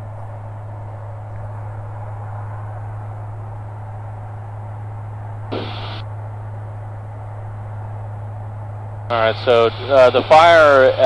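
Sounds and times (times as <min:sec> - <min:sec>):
aircraft engine and propeller drone: 0:00.0 - 0:11.0
radio static burst: 0:05.5 - 0:06.0.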